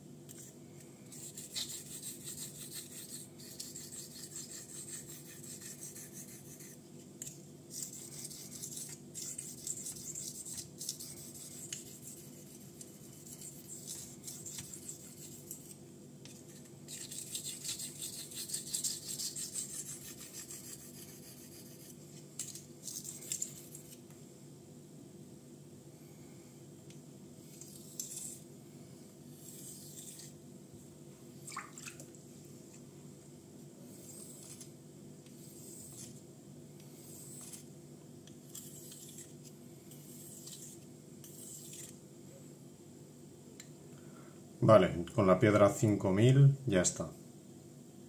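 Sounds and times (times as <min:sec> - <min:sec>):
faint steady hum: 0:00.0 - 0:48.0
knife scraping on whetstone: 0:01.1 - 0:24.0, 0:27.5 - 0:28.4, 0:29.3 - 0:30.4, 0:34.0 - 0:34.7, 0:35.3 - 0:36.2, 0:37.0 - 0:37.7, 0:38.5 - 0:42.0.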